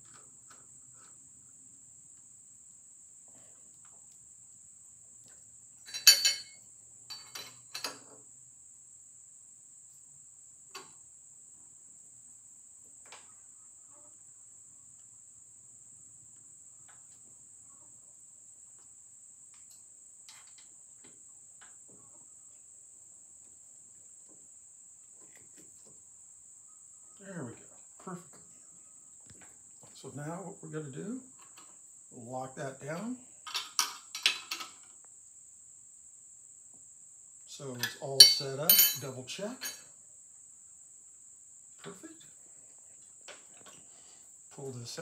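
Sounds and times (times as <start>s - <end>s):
faint high-pitched whine: 0.0s - 45.0s
metal clanks on steel table: 5.9s - 8.2s, 37.8s - 39.8s.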